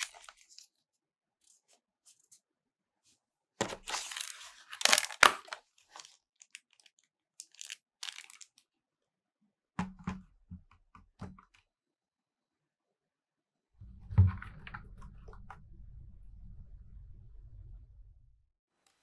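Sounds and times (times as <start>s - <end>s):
plastic bag crinkling: 3.8s - 8.6s.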